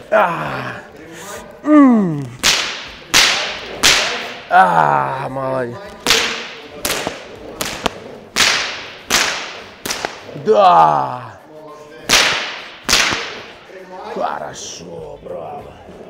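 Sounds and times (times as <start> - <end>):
whip cracking: 2.4 - 4.5, 6.0 - 10.4, 12.1 - 13.6.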